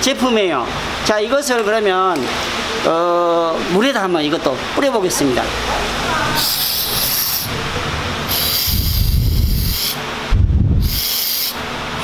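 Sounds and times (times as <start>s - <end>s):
aerosol can spraying: 6.4s - 7.5s, 8.3s - 10.0s, 10.8s - 11.6s
low rumbles: 7.4s - 10.9s.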